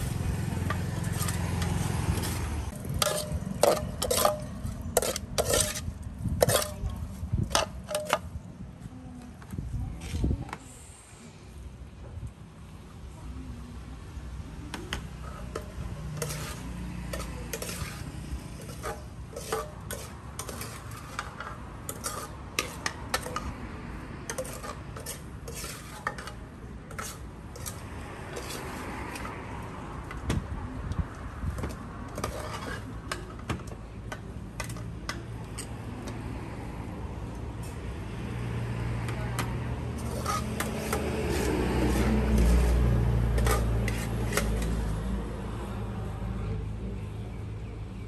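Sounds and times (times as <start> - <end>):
utensils clinking against a bowl: 2.7 - 8.3, 15.2 - 23.5, 24.2 - 29.3, 32.2 - 36.2, 39.4 - 42.7, 43.4 - 44.8.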